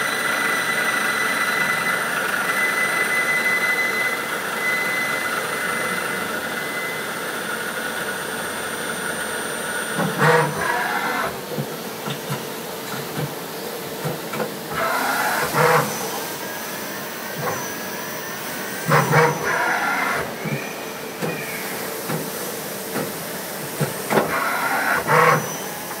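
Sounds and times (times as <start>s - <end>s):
lathe machine hum: 0.0s - 26.0s
bursts of machining noise: 9.9s - 11.4s, 14.7s - 21.8s, 24.1s - 26.0s.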